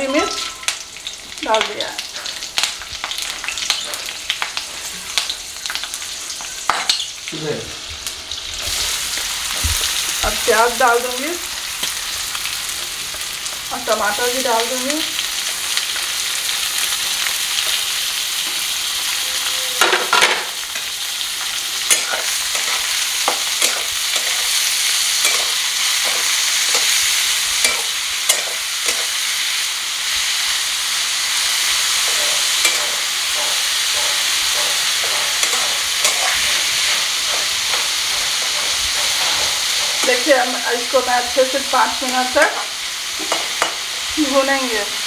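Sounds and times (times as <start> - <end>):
onions sizzling in hot oil: 0.0 - 45.0
spatula scraping and tapping pan: 21.9 - 29.2, 31.8 - 40.3.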